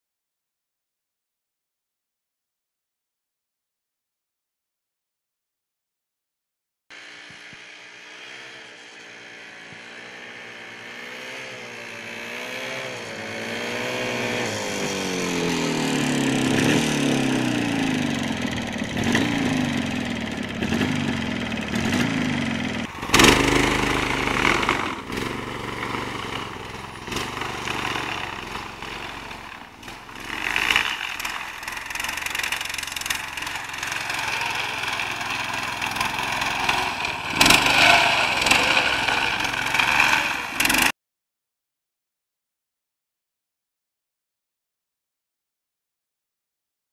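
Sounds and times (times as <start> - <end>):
snowmobile engine revving: 7.0 - 40.9
snowmobile engine running: 7.0 - 40.9.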